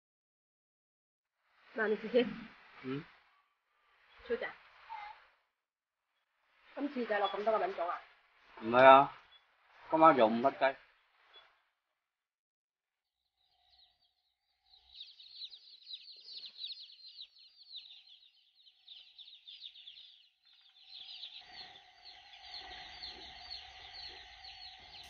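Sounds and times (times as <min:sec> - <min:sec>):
chicks peeping: 0:13.6 - 0:25.0.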